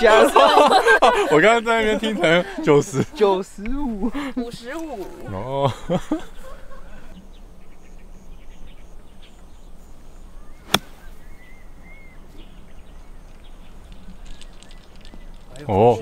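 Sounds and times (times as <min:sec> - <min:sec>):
golf club striking ball: 0:10.6 - 0:11.4.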